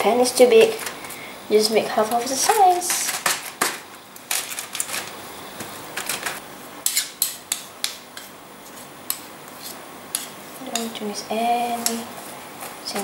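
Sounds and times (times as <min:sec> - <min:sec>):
aluminium foil crinkling: 0:02.2 - 0:05.2
metal spoon scraping pan: 0:06.8 - 0:08.3, 0:09.1 - 0:11.0.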